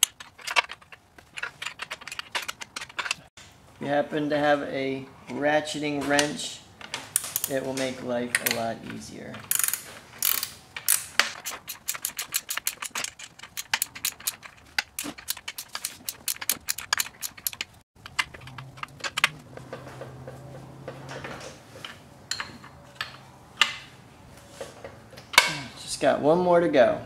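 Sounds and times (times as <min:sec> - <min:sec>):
ratchet wrench clicking: 0:09.5 - 0:19.4.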